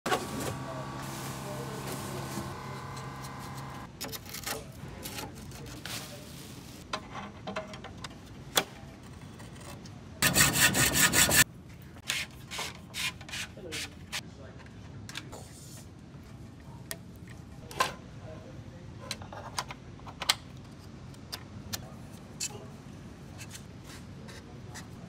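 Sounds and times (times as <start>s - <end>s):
steady multi-tone hum: 0.1s - 4.0s
rough rubbing rasp: 10.2s - 11.4s.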